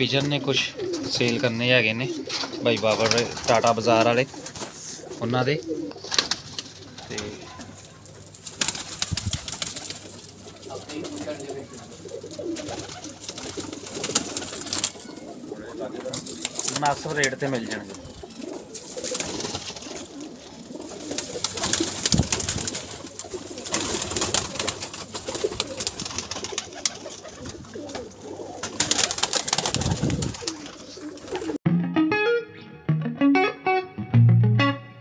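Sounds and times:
pigeons cooing: 0.0s - 31.6s
pigeon wing claps and flutters: 2.3s - 4.8s, 5.9s - 15.1s, 16.0s - 31.6s
guitar music: 31.6s - 35.0s.

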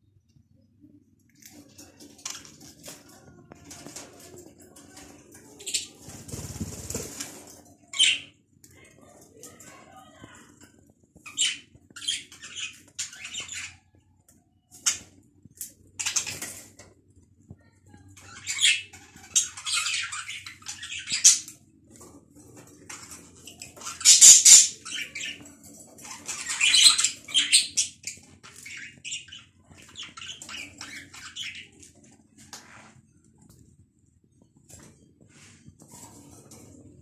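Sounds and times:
budgerigars chattering and squawking: 23.0s - 31.8s.

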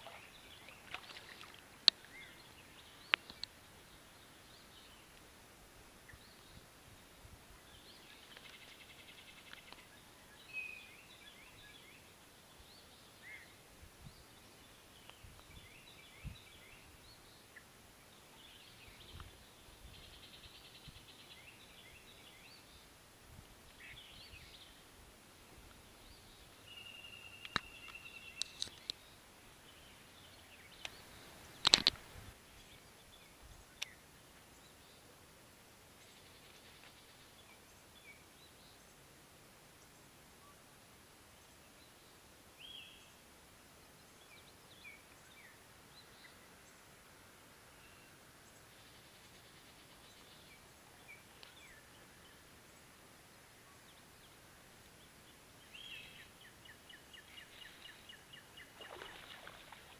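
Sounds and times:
songbirds chirping: 0.0s - 59.9s
sharp clicks: 31.6s - 32.0s.

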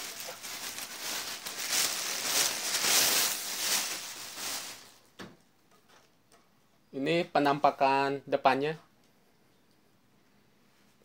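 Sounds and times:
plastic bag crinkling: 0.0s - 5.1s.

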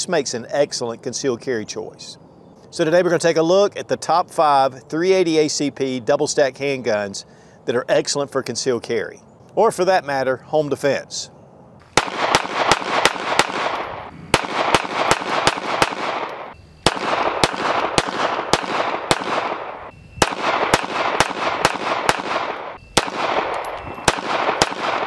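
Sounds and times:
pistol shots with echo: 12.0s - 25.0s.

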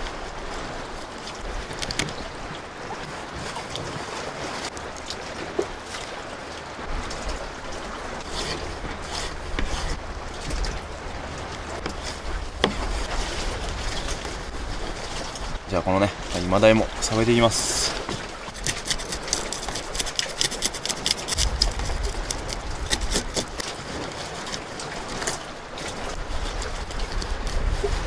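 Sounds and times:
sea waves: 0.0s - 28.0s
wind rumble: 5.7s - 18.5s, 21.3s - 24.0s, 26.1s - 28.0s
knife on plastic cutting board: 18.5s - 23.6s.

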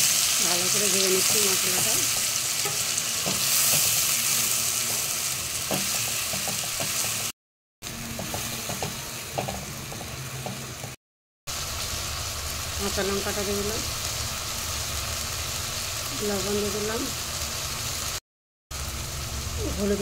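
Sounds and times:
paste sizzling in hot oil: 0.0s - 18.2s
spatula scraping and tapping pan: 5.7s - 7.2s, 8.2s - 11.0s.

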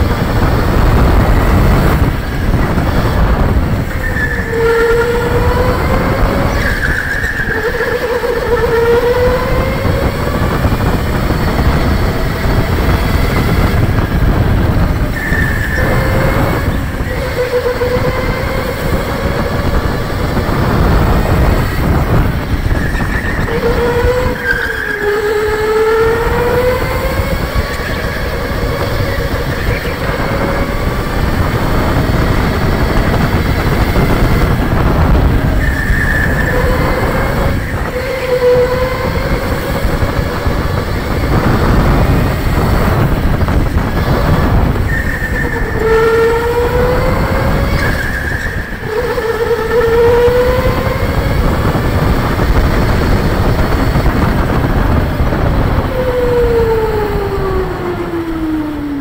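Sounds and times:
electric go-kart motor whining: 0.0s - 59.0s
heavy rumble: 0.0s - 59.0s.

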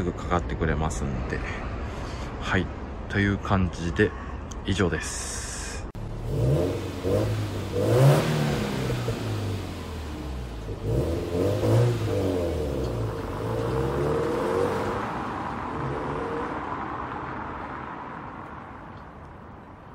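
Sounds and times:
car engine revving and driving off: 6.0s - 18.5s.

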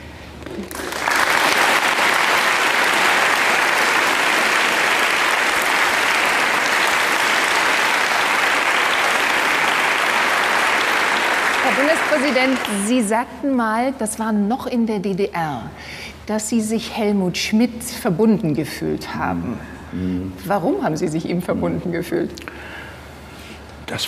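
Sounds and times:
audience applauding: 0.4s - 13.1s.

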